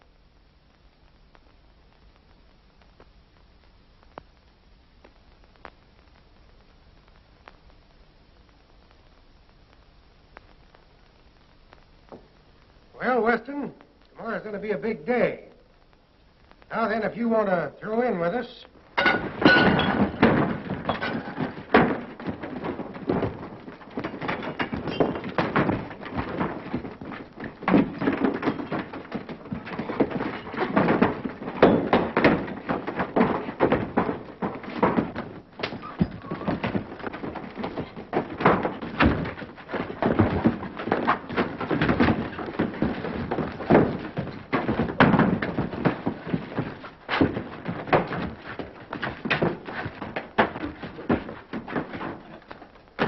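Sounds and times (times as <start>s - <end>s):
punches and heavy thuds: 19.0s - 53.0s.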